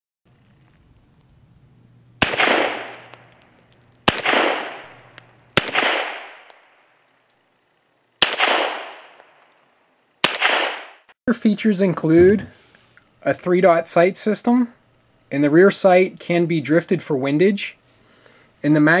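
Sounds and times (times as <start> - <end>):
pistol shots: 2.2 - 3.4, 4.0 - 6.8, 8.2 - 9.4, 10.2 - 11.1.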